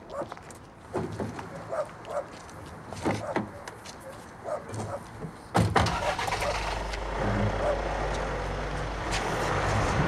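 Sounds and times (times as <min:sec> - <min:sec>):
footsteps: 0:08.1 - 0:10.0.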